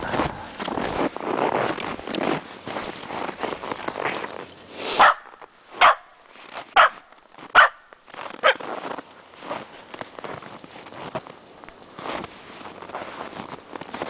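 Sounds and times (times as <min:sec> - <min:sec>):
dog barking: 0:05.0 - 0:06.2, 0:06.8 - 0:07.8, 0:08.4 - 0:08.6.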